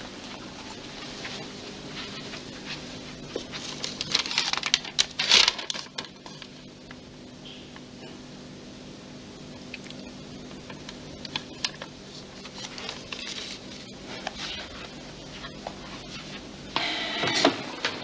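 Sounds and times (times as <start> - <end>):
low steady hum: 0.0 - 18.0
paper handling: 0.3 - 7.0, 9.9 - 16.5.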